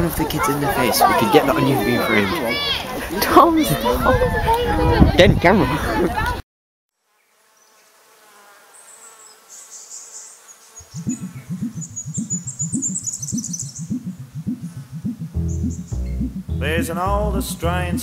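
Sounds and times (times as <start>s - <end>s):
faint buzzing: 7.0s - 18.0s
faint high chirping: 9.6s - 16.5s
low pulsing drone: 10.9s - 18.0s.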